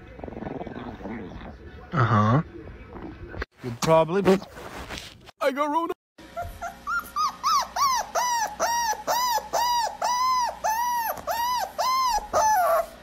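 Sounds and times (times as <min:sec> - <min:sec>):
puppy yelping: 0:06.2 - 0:13.0.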